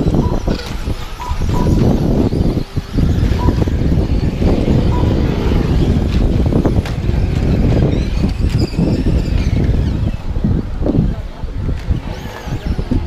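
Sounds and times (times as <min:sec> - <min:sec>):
faint high motor whine: 0:00.0 - 0:10.3
steady low rumble: 0:01.6 - 0:08.4.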